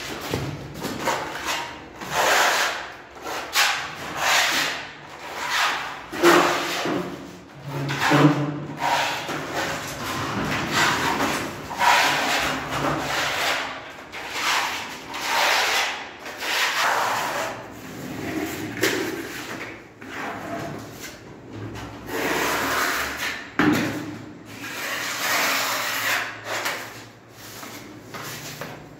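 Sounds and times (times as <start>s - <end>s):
sandpaper rasping on wall: 1.0s - 6.8s, 7.9s - 17.7s, 24.5s - 28.7s.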